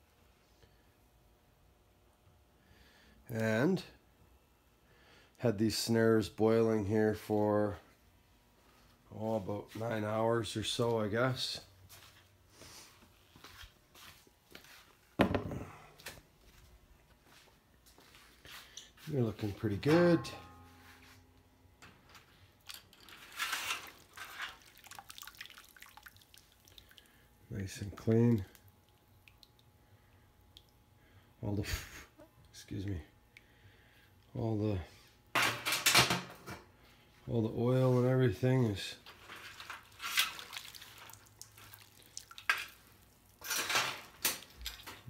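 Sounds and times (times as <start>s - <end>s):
water splashing in metal tub: 23.0s - 27.0s, 39.9s - 42.8s
water dripping into a tub: 24.4s - 29.9s, 30.5s - 30.9s, 40.1s - 43.4s.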